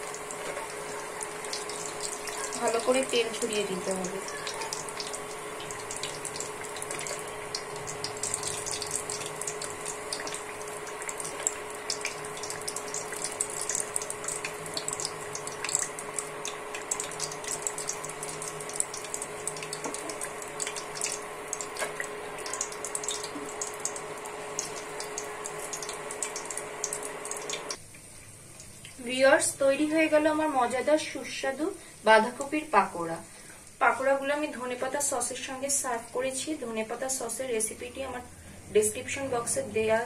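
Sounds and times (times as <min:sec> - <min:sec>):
steady hum: 0:00.0 - 0:27.8
food deep-frying in oil: 0:00.0 - 0:31.5.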